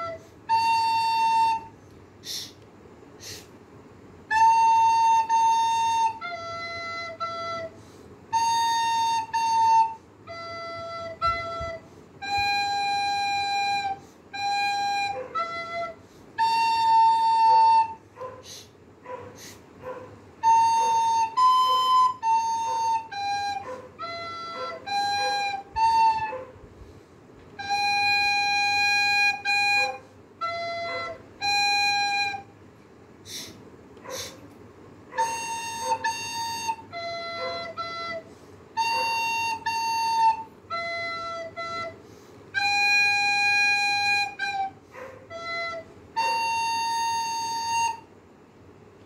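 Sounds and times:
recorder playing simple tune: 0.0s - 2.5s, 4.2s - 18.0s, 20.4s - 26.4s, 27.6s - 32.6s, 35.2s - 48.1s.

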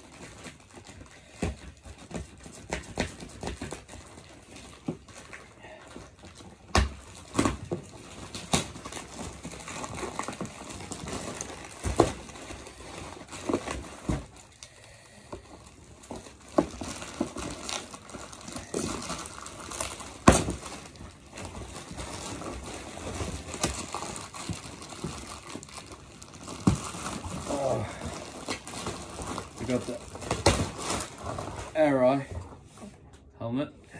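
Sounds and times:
plastic bag crinkling: 3.3s - 32.2s
packing tape ripping: 6.4s - 31.8s.

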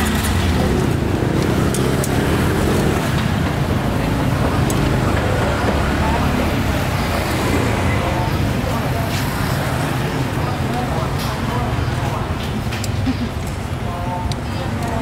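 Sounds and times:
indistinct voices: 0.0s - 15.0s
street traffic: 0.0s - 15.0s.

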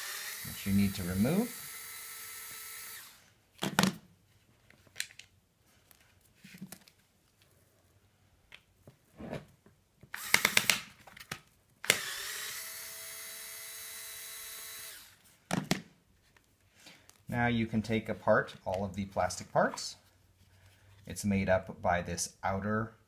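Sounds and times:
electric screwdriver whine: 0.0s - 3.2s, 10.2s - 10.7s, 11.9s - 15.2s.

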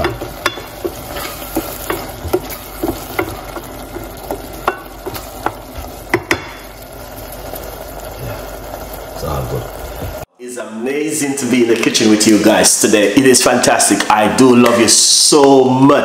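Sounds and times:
spoon knocking against pot: 0.0s - 6.6s
food sizzling in oil: 0.0s - 10.3s.

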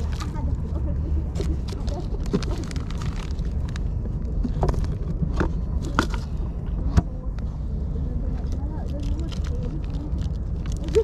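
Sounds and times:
plastic bag handling: 0.0s - 0.5s, 1.3s - 6.3s, 8.8s - 11.0s
low steady rumble: 0.0s - 11.0s.

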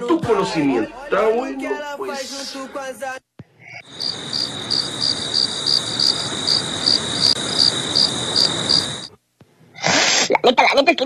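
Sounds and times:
crickets chirping: 3.8s - 9.2s
background hiss: 3.8s - 10.5s.

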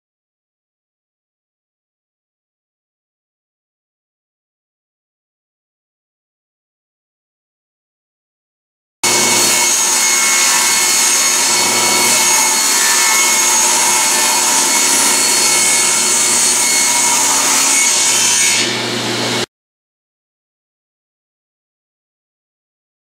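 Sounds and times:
table saw cutting wood: 9.0s - 19.5s.

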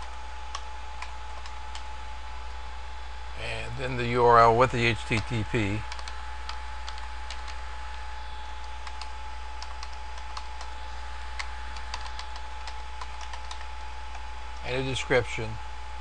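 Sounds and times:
electrical hum: 0.0s - 16.0s
faint constant tone: 0.0s - 16.0s
typing on a computer keyboard: 0.5s - 1.8s, 5.9s - 7.6s, 8.6s - 10.7s, 11.4s - 13.7s.

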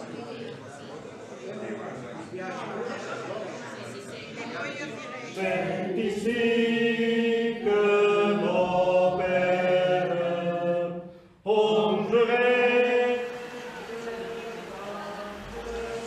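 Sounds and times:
congregation singing a hymn: 5.2s - 16.0s.

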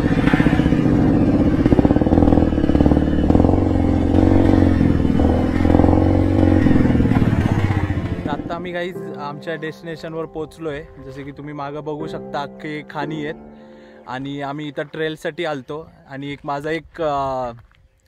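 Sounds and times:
motorcycle engine running: 0.0s - 8.6s.

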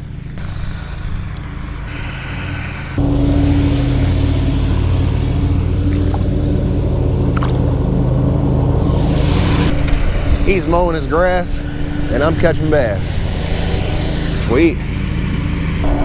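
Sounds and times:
lawn mower engine running: 0.0s - 10.3s.

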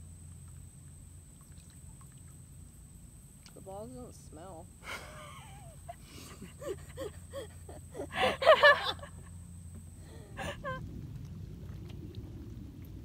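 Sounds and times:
woman laughing: 4.8s - 9.4s, 10.1s - 10.8s.

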